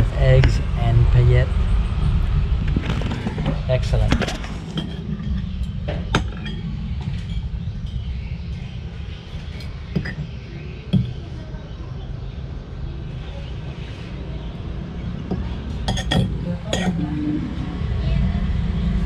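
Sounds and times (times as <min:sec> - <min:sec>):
low background rumble: 0:00.0 - 0:13.4
cutlery clinking ceramic bowl: 0:15.8 - 0:17.0.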